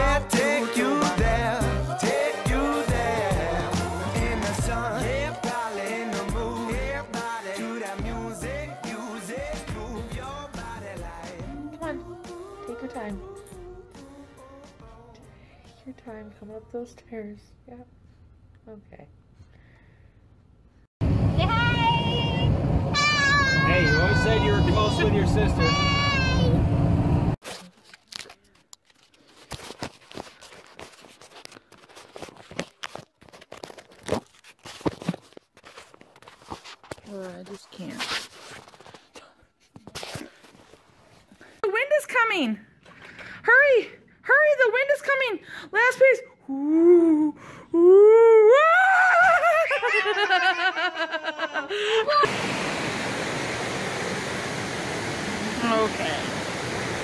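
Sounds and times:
child squealing: 23.0 - 24.6, 25.6 - 26.6, 51.0 - 52.3
child giggling: 48.4 - 52.3
waterfall rushing: 52.2 - 57.0.

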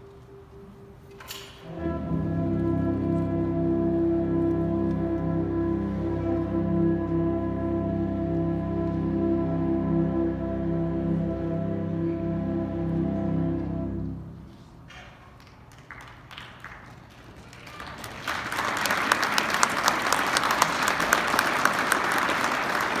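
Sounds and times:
concert band sustained chord: 0.0 - 14.6
audience applause: 15.4 - 23.0.

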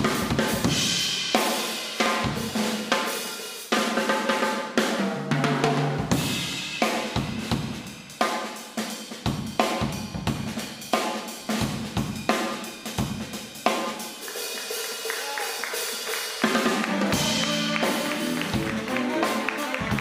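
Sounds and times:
jazz band playing: 0.0 - 20.0
jazz drum kit solo: 0.0 - 20.0
held instrument notes: 16.4 - 20.0.

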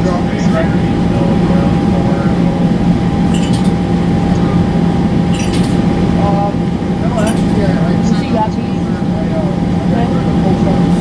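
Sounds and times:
bus engine drone: 0.0 - 11.0
constant higher tone: 0.0 - 11.0
clinking rattles: 3.3 - 3.8, 5.3 - 5.8.

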